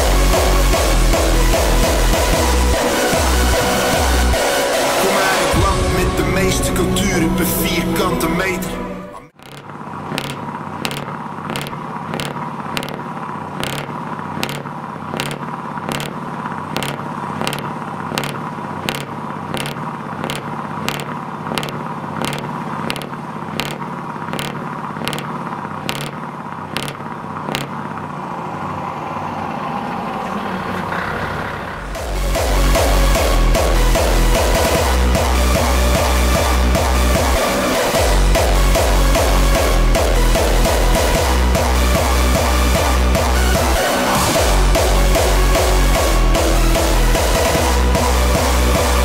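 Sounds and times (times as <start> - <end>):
diesel truck engine idling: 0.0 - 49.0
sharp rhythmic clicking: 9.4 - 28.0, 31.9 - 49.0.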